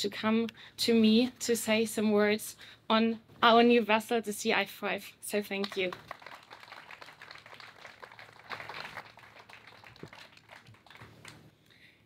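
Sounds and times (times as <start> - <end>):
audience applause: 5.6 - 11.4.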